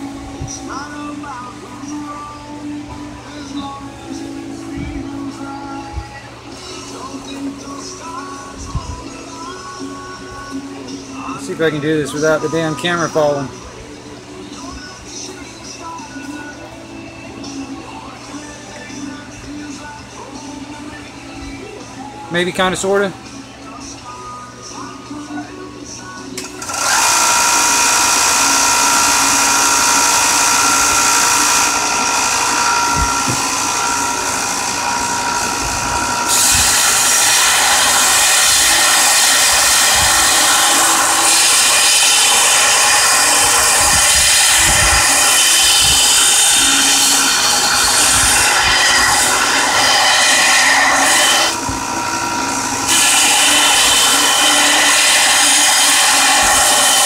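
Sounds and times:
belt grinder grinding steel blade: 0:26.6 - 0:57.0.

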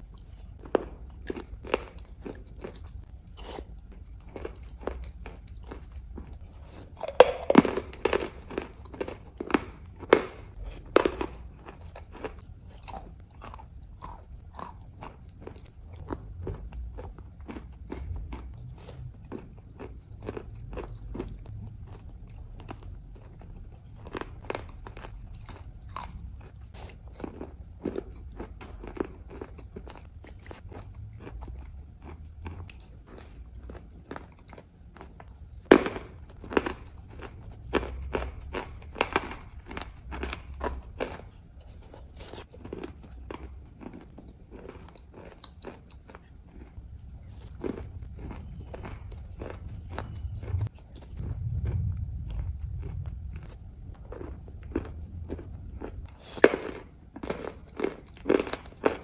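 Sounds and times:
chalk being crunched and chewed: 0:00.0 - 0:35.4, 0:36.3 - 0:59.0.

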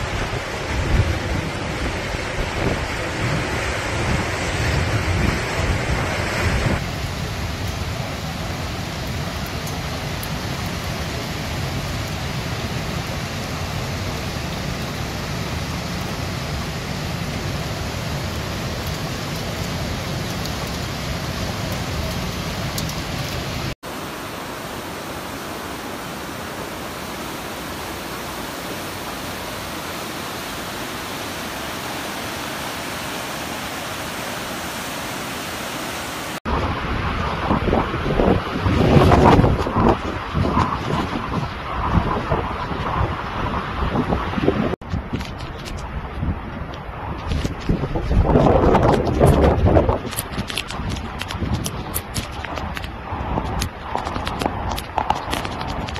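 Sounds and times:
wind buffeting microphone: 0:00.0 - 0:07.4, 0:36.5 - 0:55.9
heavy rain hissing: 0:00.0 - 0:44.4.

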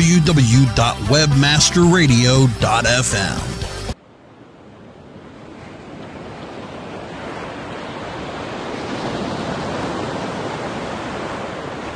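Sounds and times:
waves breaking on beach: 0:03.9 - 0:11.9.

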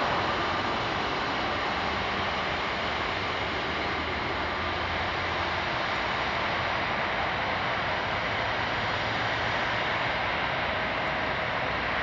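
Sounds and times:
jet engine rushing: 0:00.0 - 0:12.0.

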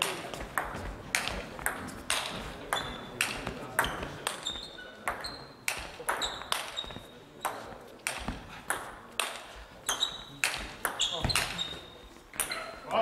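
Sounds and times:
table tennis ball clicking: 0:05.1 - 0:06.8.

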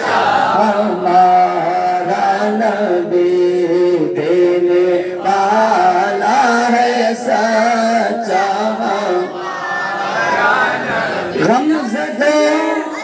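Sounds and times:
man singing into a microphone: 0:00.5 - 0:09.4, 0:11.4 - 0:13.0.

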